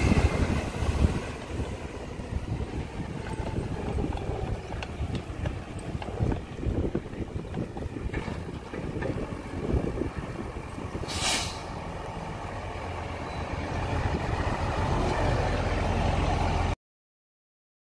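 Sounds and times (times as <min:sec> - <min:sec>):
garbage truck diesel engine: 0:00.0 - 0:16.8
air brakes hiss: 0:11.0 - 0:11.8.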